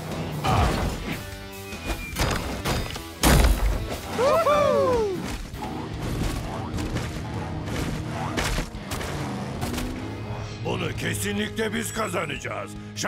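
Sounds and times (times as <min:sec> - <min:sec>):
action music: 0:00.0 - 0:13.0
boulder crashing: 0:02.2 - 0:04.1.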